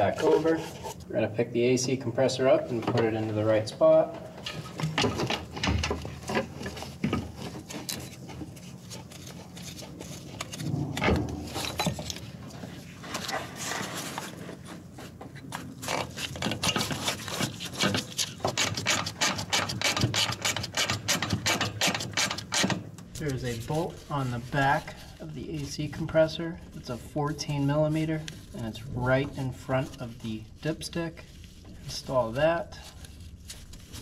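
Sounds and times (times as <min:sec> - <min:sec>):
metal knocks and scrapes: 0:09.2 - 0:14.2.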